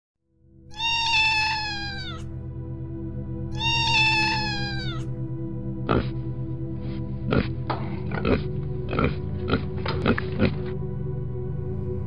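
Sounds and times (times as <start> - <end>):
kitten meowing: 0.7 - 2.2, 3.5 - 5.0.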